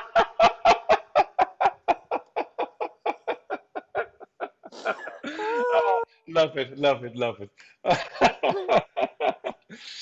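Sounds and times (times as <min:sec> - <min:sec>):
hearty rhythmic laughter: 0:00.0 - 0:06.0, 0:07.8 - 0:10.0
high-pitched wheezing laugh: 0:02.6 - 0:06.1.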